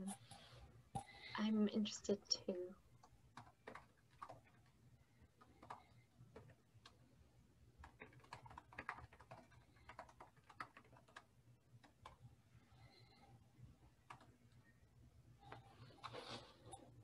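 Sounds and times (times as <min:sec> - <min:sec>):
keyboard typing clicks: 0:03.4 - 0:04.6, 0:05.4 - 0:07.0, 0:07.8 - 0:12.2.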